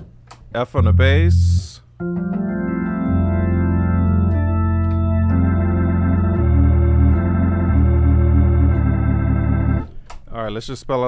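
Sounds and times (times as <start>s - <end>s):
organ playing sustained chords: 0.8s - 9.9s.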